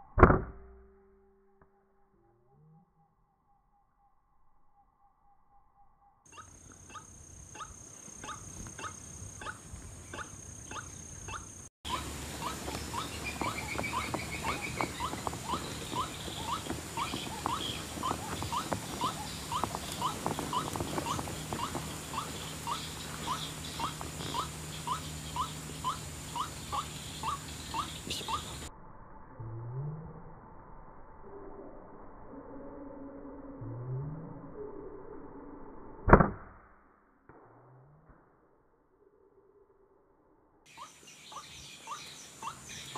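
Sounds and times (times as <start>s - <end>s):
waterhen calling: 6.3s - 28.7s, 40.7s - 42.9s.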